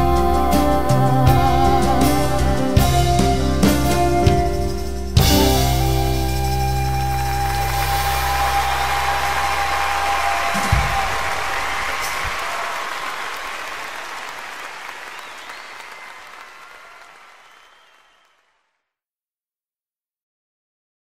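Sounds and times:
low music notes: 0.0s - 11.0s
audience applause: 6.6s - 18.6s.

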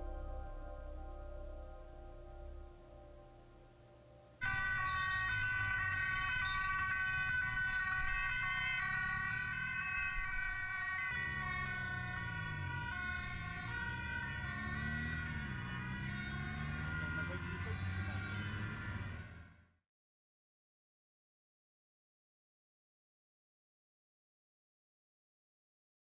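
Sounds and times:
low vehicle rumble: 0.0s - 19.7s
emergency vehicle sirens: 4.3s - 19.8s.

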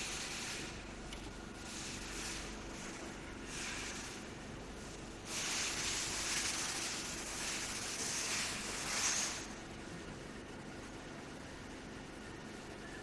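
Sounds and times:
wrapping machine humming: 0.0s - 13.0s
loud hiss: 5.2s - 9.6s.

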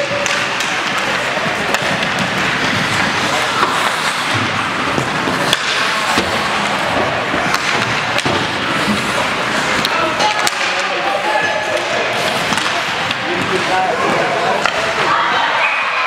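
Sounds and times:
hockey sticks and puck clacking: 0.0s - 15.2s
spectators' voices: 0.0s - 16.0s.

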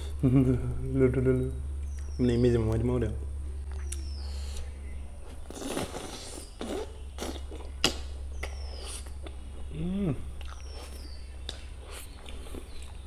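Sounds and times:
lip smacks: 3.6s - 4.7s, 5.3s - 9.5s, 10.4s - 13.0s
wet chewing: 5.3s - 9.7s, 10.4s - 13.0s
person humming mm: 9.7s - 10.4s.

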